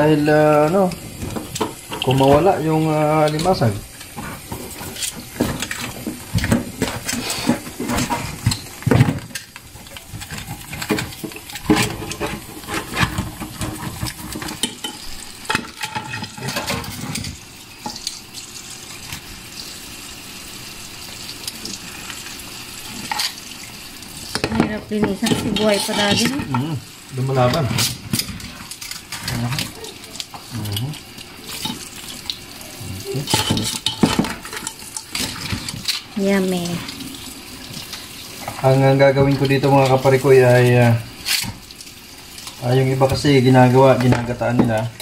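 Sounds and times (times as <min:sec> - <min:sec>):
crab shells scraping container: 0:00.7 - 0:09.4, 0:10.0 - 0:14.6.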